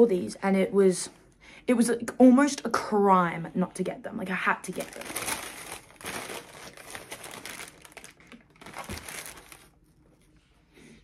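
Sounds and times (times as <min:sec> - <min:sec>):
tissue paper rustling: 0:04.7 - 0:10.4.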